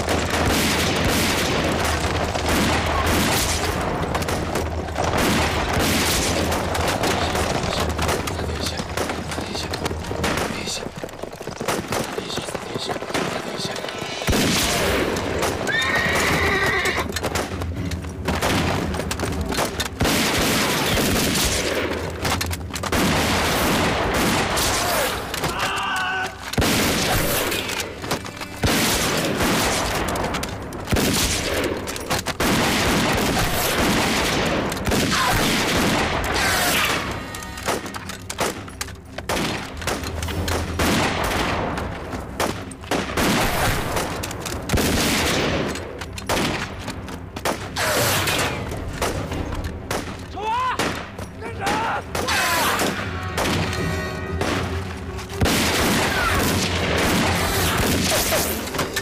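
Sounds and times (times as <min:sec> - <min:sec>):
rifle shots: 0:00.0 - 0:10.9, 0:11.6 - 0:25.6, 0:26.4 - 0:50.2, 0:50.8 - 0:59.0
dramatic orchestral music: 0:00.0 - 0:59.0
horses whinnying: 0:15.1 - 0:17.4.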